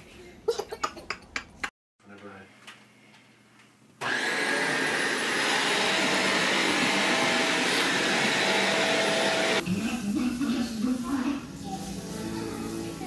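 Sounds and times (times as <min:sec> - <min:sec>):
vacuum cleaner motor whine: 0:04.0 - 0:09.6.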